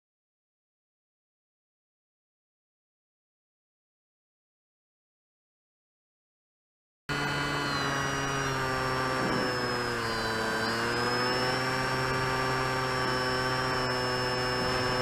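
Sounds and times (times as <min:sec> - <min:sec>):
model aircraft motor droning: 0:07.1 - 0:15.0.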